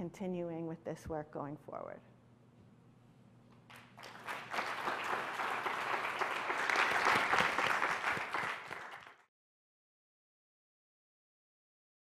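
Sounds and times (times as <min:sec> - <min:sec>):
audience applauding: 0:03.7 - 0:09.3.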